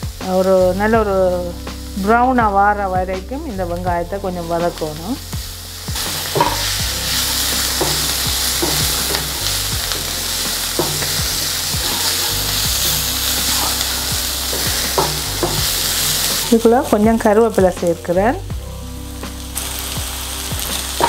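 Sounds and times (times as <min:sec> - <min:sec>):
vegetables sizzling in oil: 0:00.0 - 0:21.0
wooden spatula scraping pan: 0:06.0 - 0:16.6.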